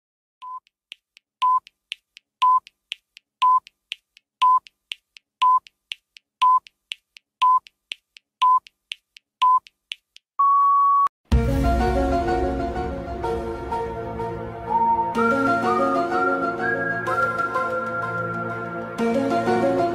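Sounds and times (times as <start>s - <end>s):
electronic countdown beeps: 0.4s - 0.7s, 1.4s - 1.7s, 2.4s - 2.7s, 3.4s - 3.7s, 4.4s - 4.7s, 5.4s - 5.7s, 6.4s - 6.7s, 7.4s - 7.7s, 8.4s - 8.7s, 9.4s - 9.7s
quick ticks: 0.4s - 10.2s
music: 11.3s - 19.9s.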